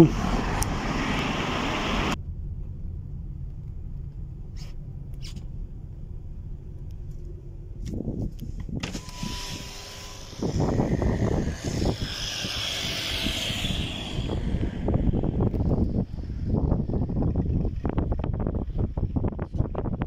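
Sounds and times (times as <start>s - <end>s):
car road rumble: 0.0s - 20.0s
wind buffeting microphone: 7.7s - 20.0s.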